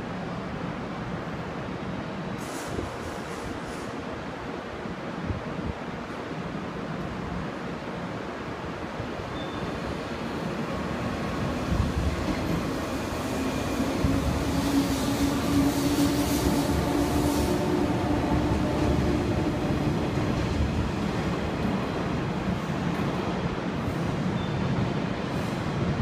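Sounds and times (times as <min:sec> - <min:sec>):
train wheels rumbling on rails: 0:02.3 - 0:04.4, 0:09.4 - 0:26.0
hiss: 0:02.4 - 0:04.2.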